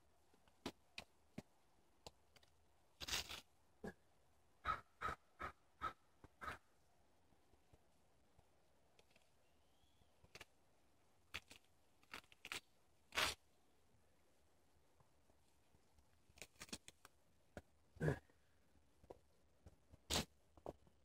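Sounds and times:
moss roots ripping: 0:11.3 - 0:13.4.

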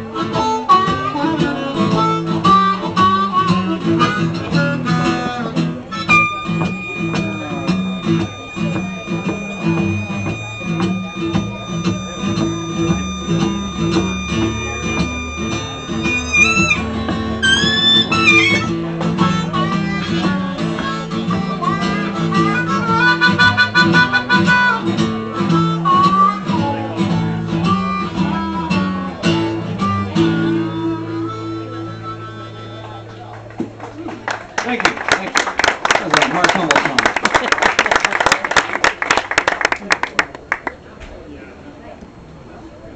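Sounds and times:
blues harmonica: 0:00.0 - 0:33.8
strummed acoustic guitar: 0:00.0 - 0:33.9.

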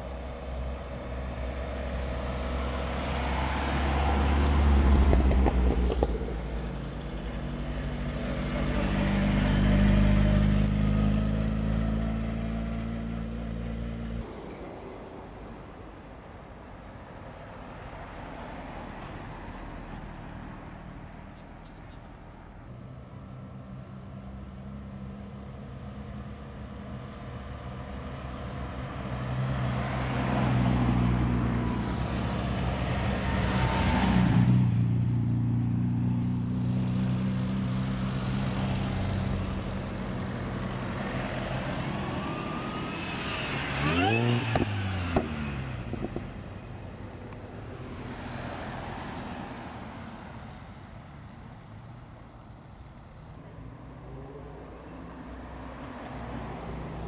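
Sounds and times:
cars driving slowly past: 0:00.0 - 0:57.0
car engine accelerating hard: 0:40.7 - 0:46.2.

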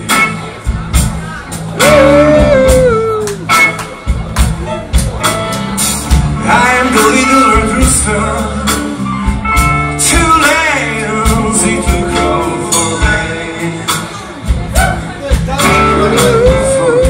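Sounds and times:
electric guitars: 0:00.0 - 0:17.0
steady drum beat: 0:00.0 - 0:17.0
man singing: 0:01.8 - 0:03.3, 0:06.4 - 0:09.0, 0:09.9 - 0:17.0.

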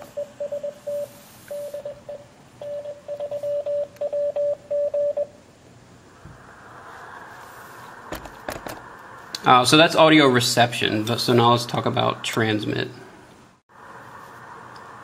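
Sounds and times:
morse code tone: 0:00.0 - 0:05.4
faint hiss: 0:00.8 - 0:02.0, 0:05.4 - 0:15.0.

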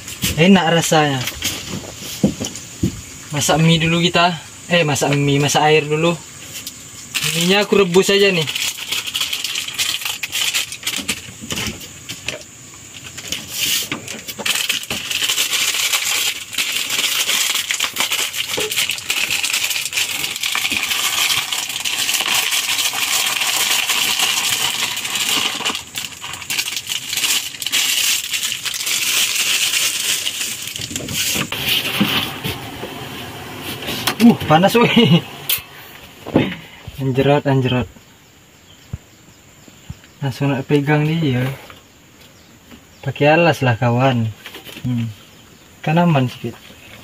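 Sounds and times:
dry noodles crackling as crushed: 0:07.1 - 0:11.8, 0:13.0 - 0:32.0
pieces rattling into plastic tub: 0:07.2 - 0:11.7, 0:14.0 - 0:32.2.

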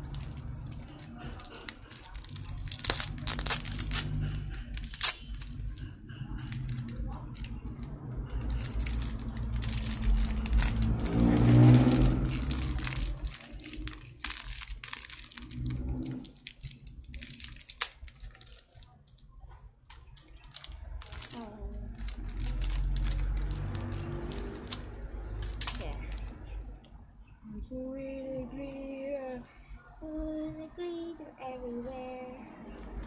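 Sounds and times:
plastic packet crinkling and tearing: 0:00.0 - 0:19.2, 0:20.4 - 0:26.3
low hum: 0:00.0 - 0:19.6.

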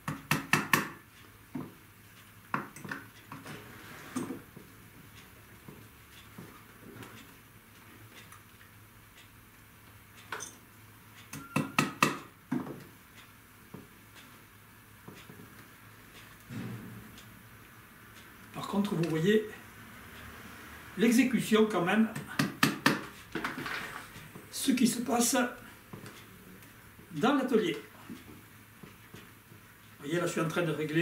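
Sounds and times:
hammer tapping tacks into wood: 0:00.0 - 0:01.0, 0:11.3 - 0:12.8, 0:22.1 - 0:23.5.

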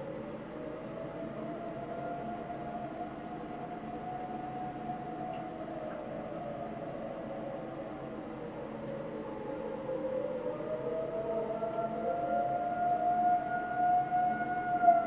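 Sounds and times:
wailing warning siren: 0:00.0 - 0:15.0.

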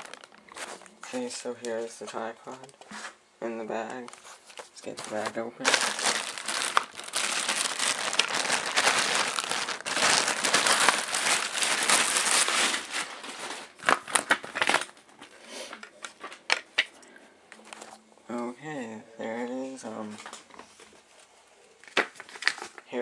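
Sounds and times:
plastic bag crinkling: 0:00.0 - 0:01.2, 0:03.9 - 0:16.8, 0:21.8 - 0:22.9.

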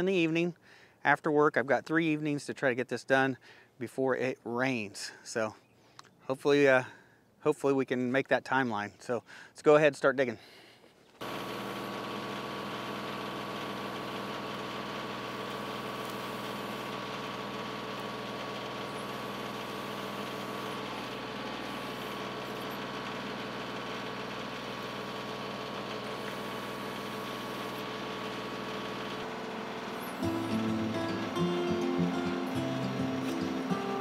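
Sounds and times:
tractor diesel engine running: 0:11.2 - 0:34.0.

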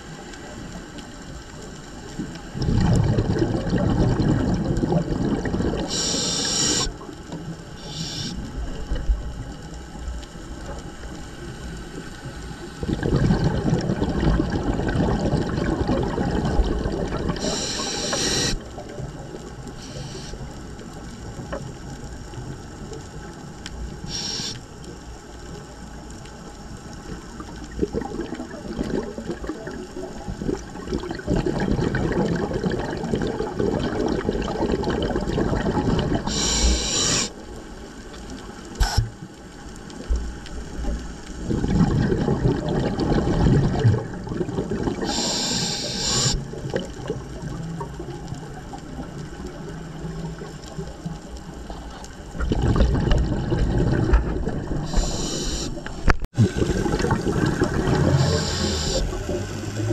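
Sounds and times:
bubbling exhalation underwater: 0:02.6 - 0:07.0, 0:12.8 - 0:18.9, 0:27.3 - 0:37.3, 0:41.4 - 0:59.9
regulator inhalation hiss: 0:05.9 - 0:07.0, 0:07.8 - 0:08.6, 0:17.4 - 0:18.6, 0:19.8 - 0:20.4, 0:24.0 - 0:24.7, 0:36.3 - 0:37.4, 0:38.8 - 0:39.1, 0:45.0 - 0:46.4, 0:54.9 - 0:55.9, 0:58.0 - 0:59.2.

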